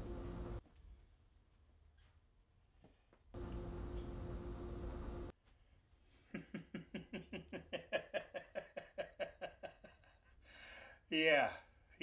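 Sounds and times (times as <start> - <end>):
man laughing: 6.3 - 10.4.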